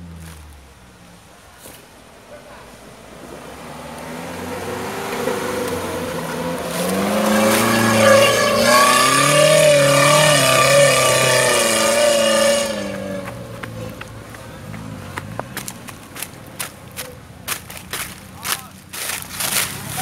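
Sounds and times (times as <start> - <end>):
footsteps crunching dry leaves: 0.0 - 0.7, 15.8 - 20.0
engine revving hard: 3.3 - 14.0.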